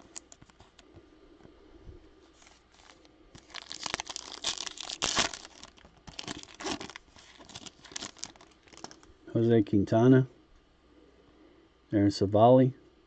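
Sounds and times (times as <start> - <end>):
foil wrapper tearing and crinkling: 2.4 - 9.1.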